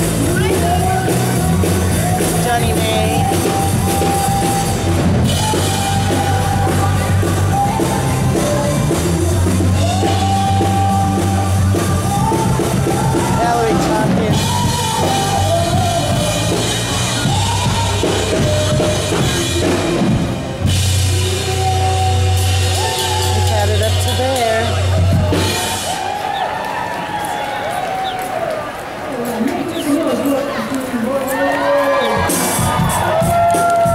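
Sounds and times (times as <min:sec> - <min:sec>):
drum kit: 0:00.0 - 0:27.2, 0:32.0 - 0:33.9
live rock band: 0:00.0 - 0:28.4, 0:31.8 - 0:33.9
woman singing: 0:05.4 - 0:20.0.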